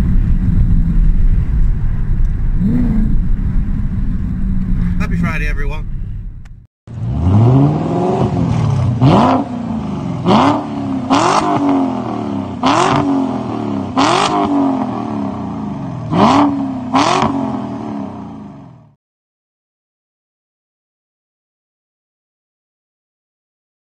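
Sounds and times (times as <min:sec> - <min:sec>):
car engine revving: 0:00.0 - 0:18.9.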